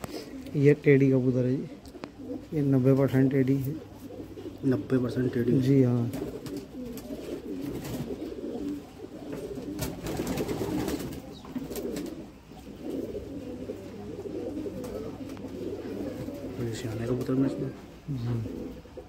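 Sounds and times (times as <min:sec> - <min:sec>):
pigeons cooing: 0:00.0 - 0:19.0.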